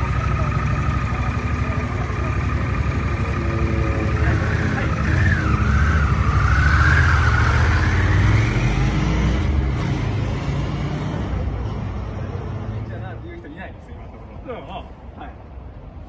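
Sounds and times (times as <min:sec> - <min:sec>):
motorcycle engine revving: 0:00.0 - 0:11.4.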